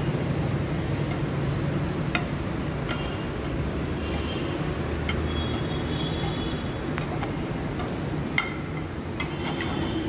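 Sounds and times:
patties sizzling in oil: 0.0s - 10.0s
metal spatula clicking on pan: 1.0s - 1.3s, 2.0s - 3.8s, 4.9s - 6.3s, 7.0s - 9.8s.

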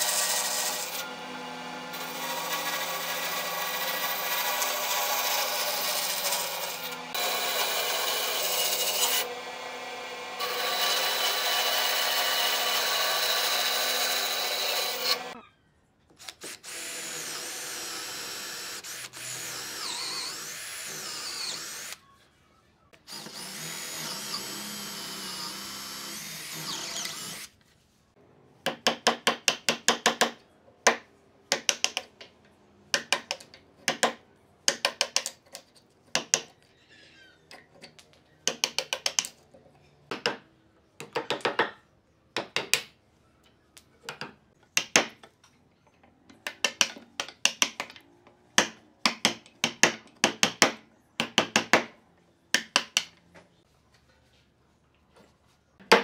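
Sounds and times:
electric drill boring into wood: 0.0s - 15.4s, 16.6s - 22.0s, 23.1s - 27.5s.

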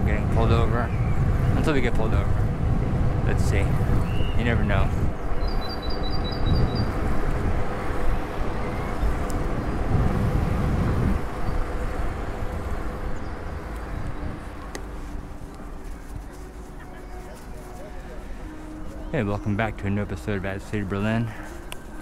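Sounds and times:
city traffic noise: 0.0s - 22.0s
wind rumbling on microphone: 0.0s - 22.0s.

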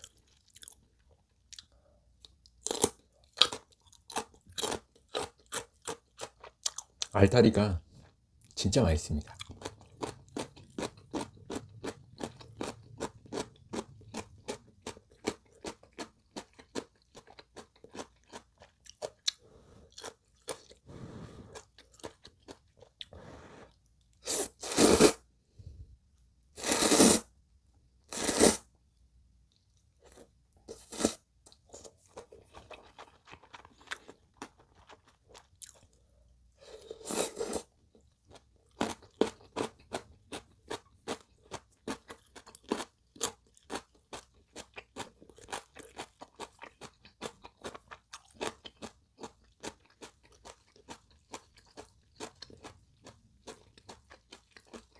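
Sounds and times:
crunchy chewing: 0.0s - 7.1s, 9.2s - 25.2s, 29.5s - 54.9s
slurping noodles: 20.7s - 21.8s, 23.0s - 25.2s, 26.6s - 27.3s, 28.1s - 28.6s, 36.6s - 37.7s.

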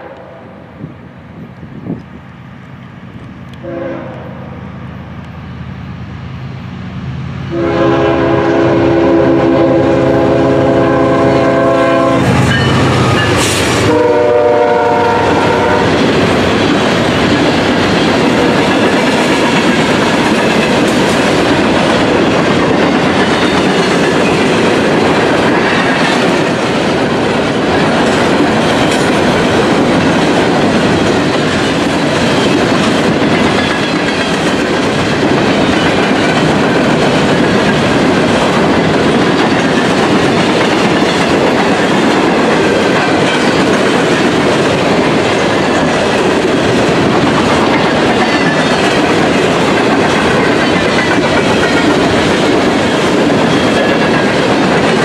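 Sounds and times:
locomotive passing: 0.0s - 55.0s
train cars rumbling past: 0.0s - 55.0s
locomotive air horn blasts: 3.6s - 4.5s, 7.5s - 12.7s, 13.8s - 15.9s
wheels clacking over rail joints: 11.0s - 55.0s.

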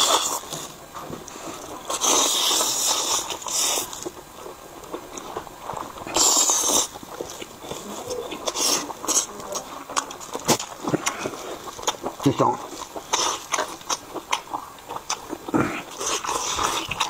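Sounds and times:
wet chewing: 0.0s - 17.0s
man slurping noodles: 6.1s - 6.9s.

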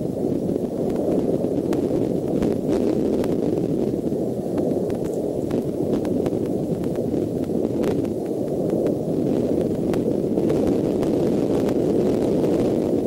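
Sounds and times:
wind rumbling on microphone: 0.0s - 13.0s
faint clicks: 4.1s - 10.1s.

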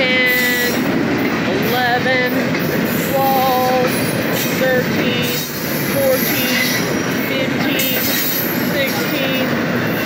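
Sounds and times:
steel wheels rumbling on rail: 0.0s - 10.0s
wheels squealing: 2.6s - 10.0s.

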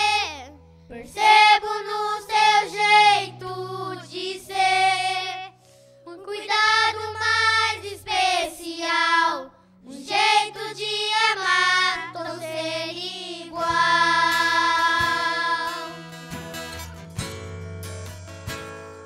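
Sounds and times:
soft instrumental backing: 0.0s - 19.0s
boys singing together: 9.9s - 16.1s.

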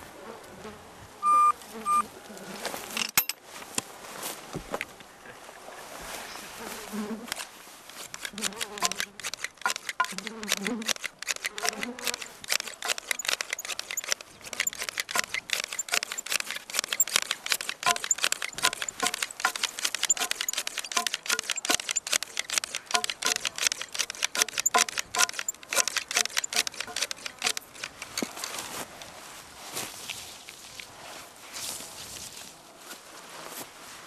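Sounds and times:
grass shears snipping grass: 7.2s - 28.9s.

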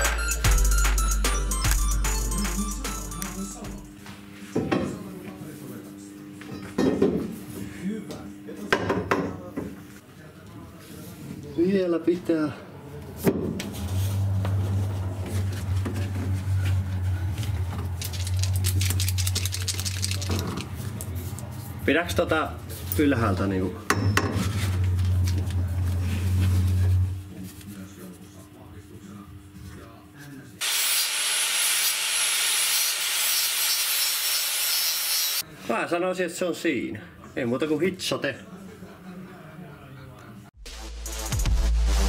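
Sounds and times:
low machine hum: 12.4s - 30.5s
angle grinder grinding steel: 30.6s - 35.4s.

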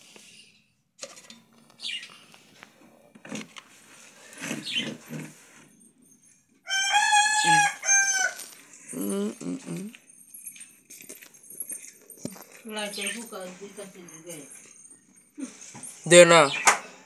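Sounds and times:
chicken calling loudly: 6.7s - 8.5s.

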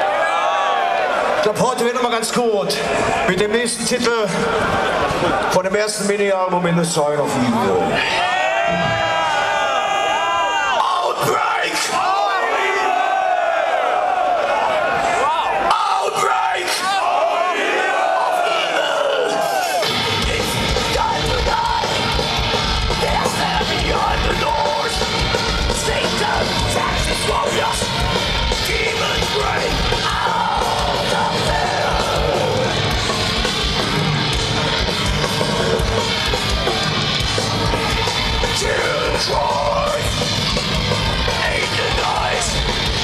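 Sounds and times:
thrash metal band playing live: 19.8s - 43.0s.

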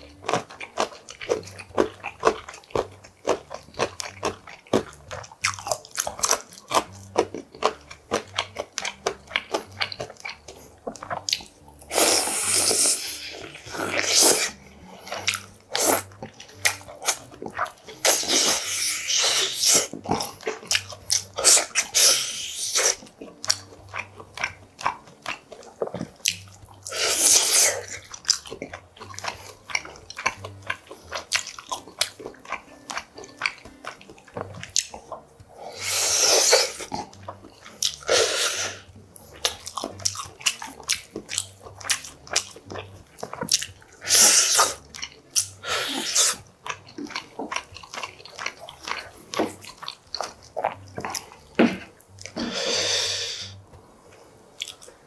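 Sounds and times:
wet chewing: 0.0s - 55.0s.

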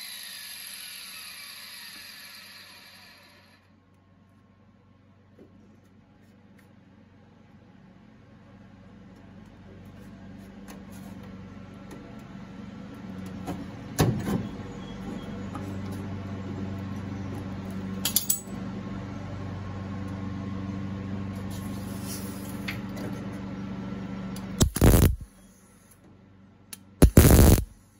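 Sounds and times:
steady low hum: 3.6s - 27.9s
quick clicks: 24.6s - 25.2s, 26.8s - 27.7s.

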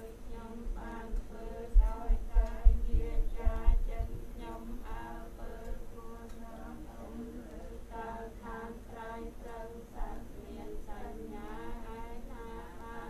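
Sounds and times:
steady low hum: 0.0s - 13.0s
woman singing: 0.0s - 13.0s
dull low thumps: 1.7s - 4.3s.

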